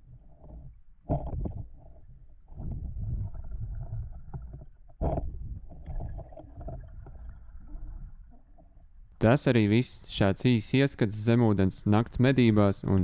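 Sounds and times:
muffled underwater rumble: 0:00.0 - 0:09.2.

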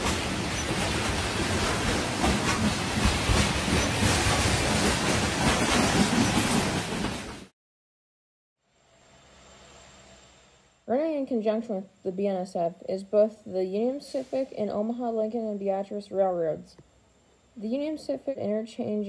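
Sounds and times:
wheels clicking on rail: 0:00.0 - 0:07.4
freight train cars rolling past: 0:00.0 - 0:07.5.

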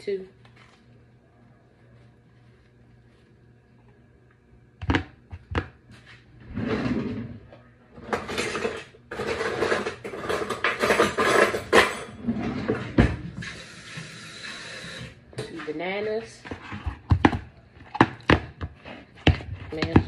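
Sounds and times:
kitchen utensils clattering: 0:08.0 - 0:13.2.

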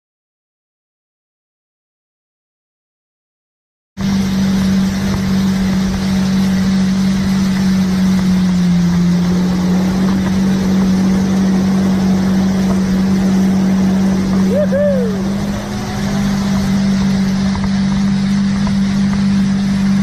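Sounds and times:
motorboat engine running: 0:04.0 - 0:20.0
rushing water: 0:04.0 - 0:20.0
wind: 0:04.0 - 0:20.0.

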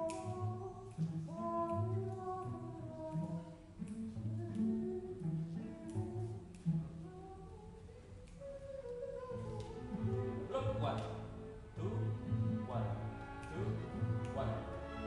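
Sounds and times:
person singing unaccompanied: 0:00.0 - 0:15.0.

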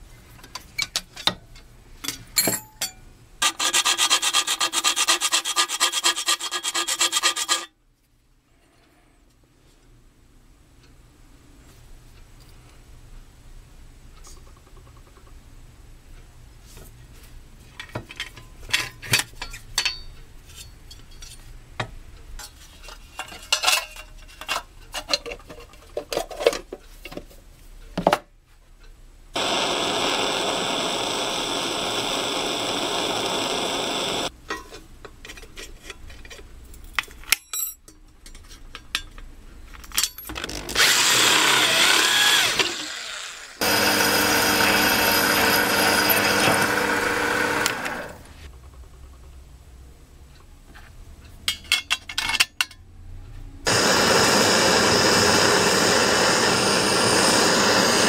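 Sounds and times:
metal lathe running: 0:29.4 - 0:34.3, 0:40.8 - 0:48.2, 0:53.7 - 0:58.0
soldering torch hissing: 0:29.4 - 0:34.3, 0:53.7 - 0:58.0.

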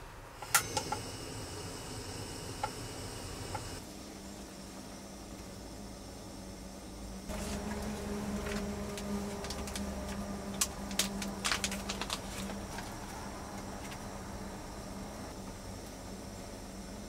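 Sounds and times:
gas stove burner hissing: 0:00.0 - 0:17.0
plastic pouch crinkling: 0:07.3 - 0:13.2.

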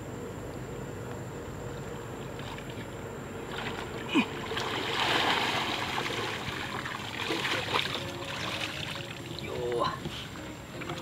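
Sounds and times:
water splashing off weeds: 0:03.5 - 0:09.6.

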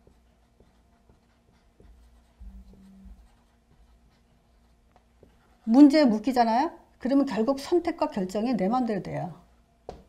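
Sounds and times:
marker pen writing on whiteboard: 0:00.0 - 0:06.2.

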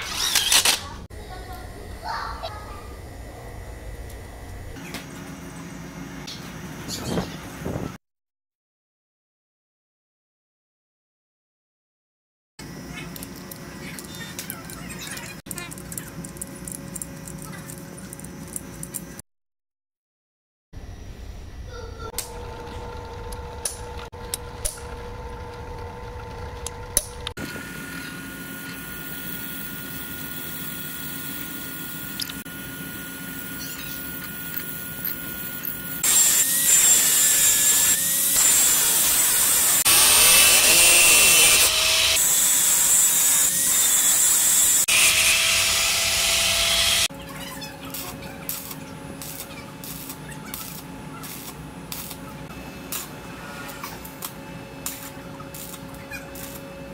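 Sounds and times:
angle grinder cutting metal: 0:33.3 - 0:47.1, 0:47.9 - 0:52.3, 0:52.9 - 0:56.7.

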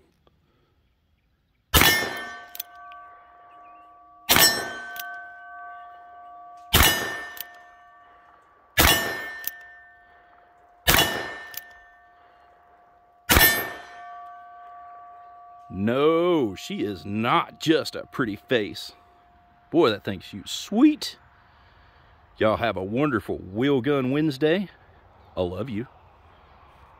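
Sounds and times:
steel target clanging: 0:01.8 - 0:20.7.

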